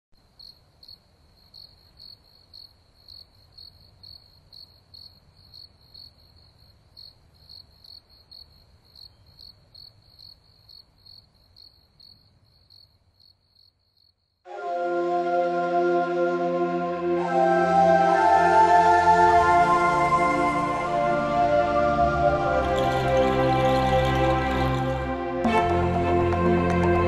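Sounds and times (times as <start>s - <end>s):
cricket chirping: 0.2s - 14.5s
music with chiming notes: 14.5s - 27.0s.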